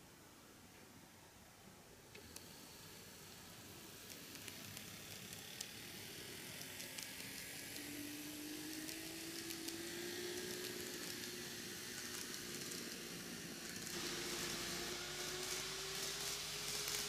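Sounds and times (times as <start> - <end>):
small electric motor humming: 2.2 - 17.0
wheels hissing on rails: 2.2 - 17.0.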